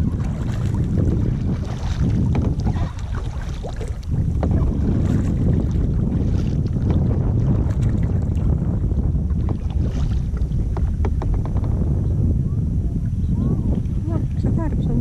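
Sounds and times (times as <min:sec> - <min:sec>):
paddles splashing in water: 0:00.0 - 0:11.8
wind buffeting microphone: 0:00.0 - 0:15.0.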